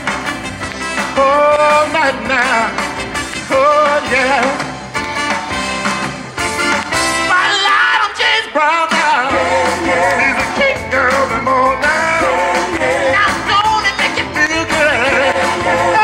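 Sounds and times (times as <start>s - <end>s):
rock and roll band music: 0.0s - 16.0s
men singing: 1.0s - 2.8s, 3.4s - 4.7s, 7.3s - 16.0s.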